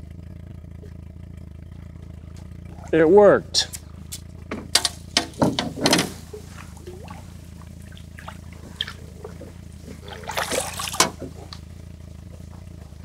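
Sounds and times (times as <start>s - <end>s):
water dripping and sloshing: 4.8s - 11.7s
water splashing: 4.8s - 12.8s.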